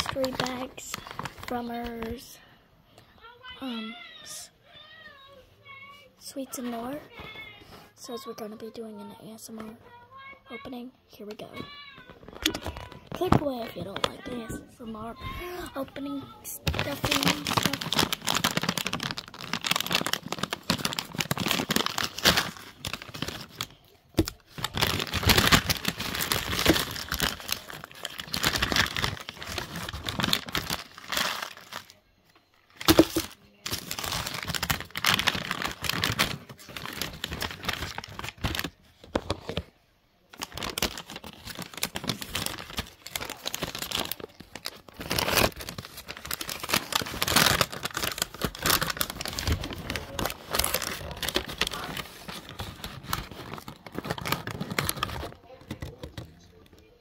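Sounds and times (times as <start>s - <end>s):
sweet packaging crinkling and tearing: 0.0s - 2.4s, 11.7s - 57.0s.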